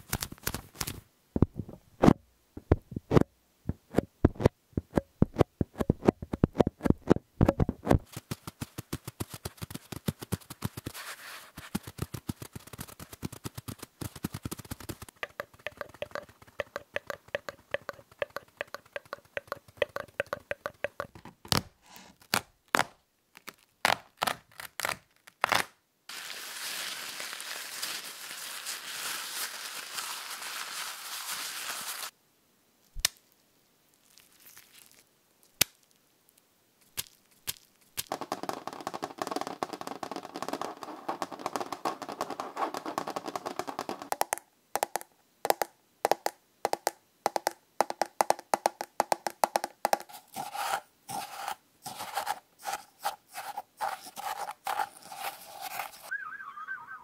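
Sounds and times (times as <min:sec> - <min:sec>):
rapid clicks and taps: 0:02.6 - 0:11.0, 0:11.7 - 0:21.3, 0:36.8 - 0:50.4
taps on paper roll: 0:14.4 - 0:21.1, 0:38.0 - 0:50.2
scratching on wooden tray: 0:14.8 - 0:21.1, 0:49.9 - 0:56.1
spoon in salt container: 0:15.1 - 0:21.1, 0:50.0 - 0:56.1
clicks: 0:15.2 - 0:21.2
crinkly rustle: 0:26.1 - 0:32.1, 0:33.2 - 0:36.4.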